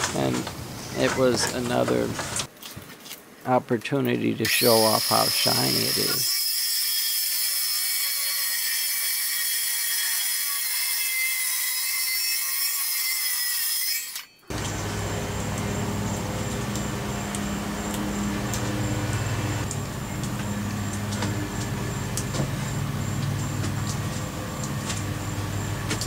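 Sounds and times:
circular saw whining: 4.5s - 26.0s
steady low hum: 14.5s - 26.0s.

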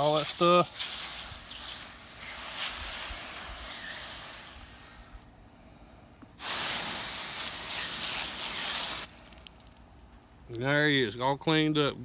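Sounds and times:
hose nozzle spraying water: 0.0s - 5.3s, 6.4s - 9.4s.

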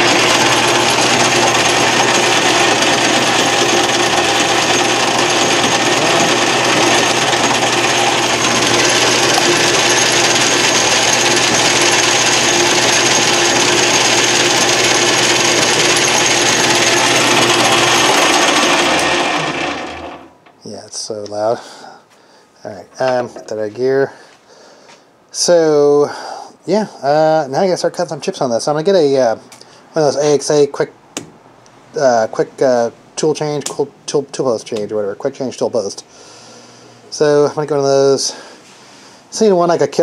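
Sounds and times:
lathe gears running noisily: 0.0s - 20.3s.

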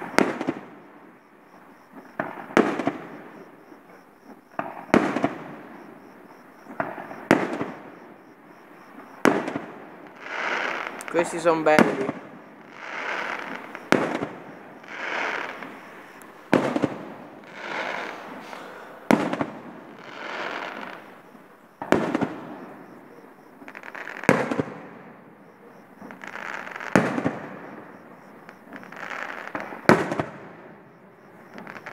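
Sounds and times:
firework shells bursting: 1.6s - 24.9s
firework hiss: 8.9s - 22.9s.

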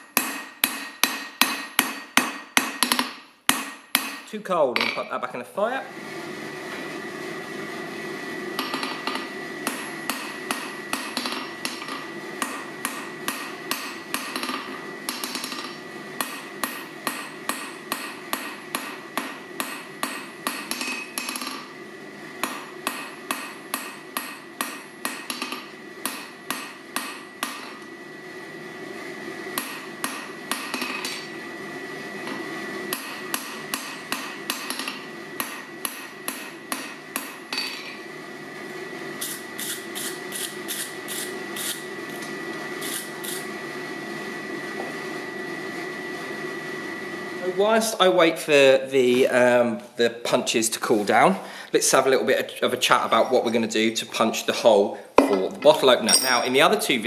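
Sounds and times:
hammer striking steel on anvil: 0.0s - 5.1s, 8.6s - 21.6s, 22.4s - 27.8s, 29.6s - 31.3s, 32.9s - 38.0s, 55.2s - 56.6s.

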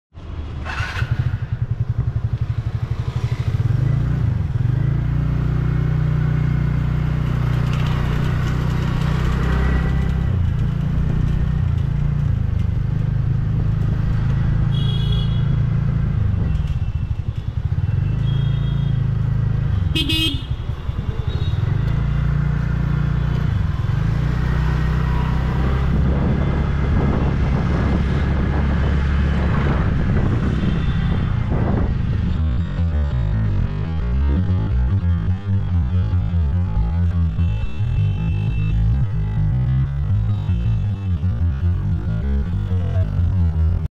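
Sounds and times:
scooter horn toots: 14.6s - 15.6s, 17.9s - 19.1s, 19.8s - 21.6s, 37.3s - 38.8s.

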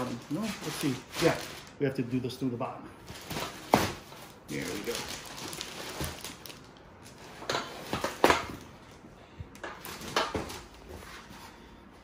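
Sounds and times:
plastic wrapping crinkling: 0.0s - 2.0s, 3.1s - 8.4s.

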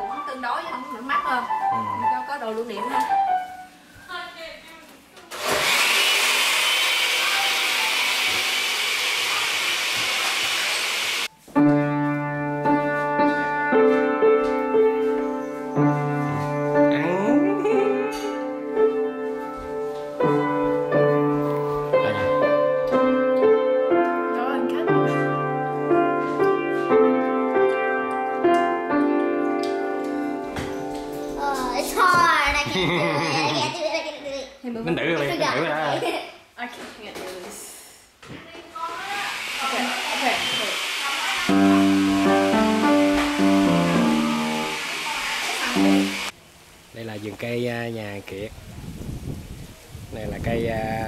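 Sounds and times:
keyboard music with chords: 0.0s - 3.7s, 11.6s - 31.4s.

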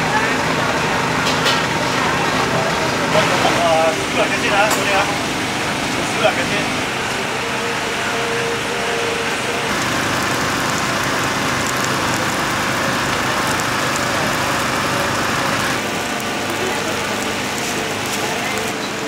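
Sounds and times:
small engine humming: 7.3s - 19.0s.

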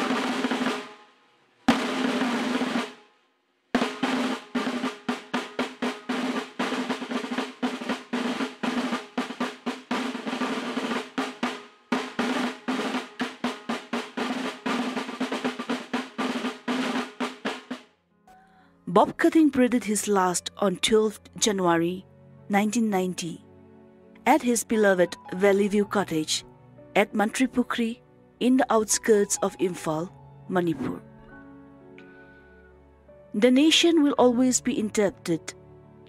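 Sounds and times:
snare drum rolls: 0.0s - 1.1s, 1.7s - 3.1s, 3.8s - 17.9s.

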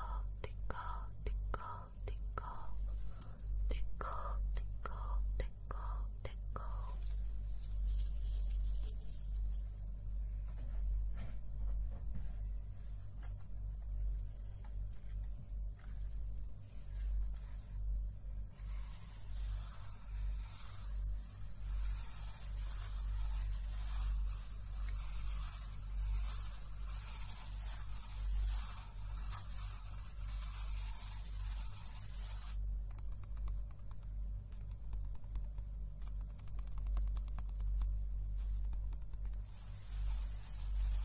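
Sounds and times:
hands brushing paper pages: 6.6s - 10.8s, 13.0s - 34.0s, 34.6s - 41.0s.

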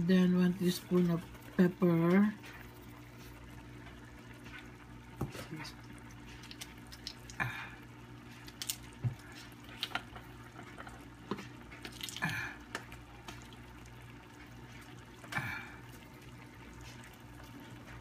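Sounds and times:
food simmering in a pan: 0.0s - 18.0s.

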